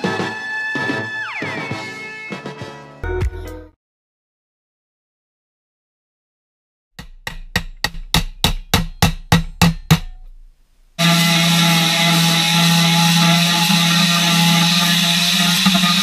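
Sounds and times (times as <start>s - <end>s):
angle grinder cutting steel: 11.0s - 16.0s.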